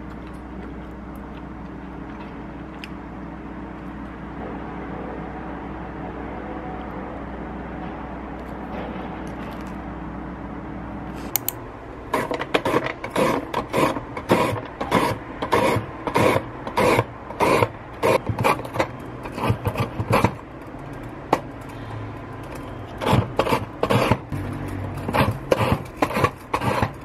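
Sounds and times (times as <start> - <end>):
carrot rasping on a slicer: 12.1 - 20.5, 21.3 - 27.0.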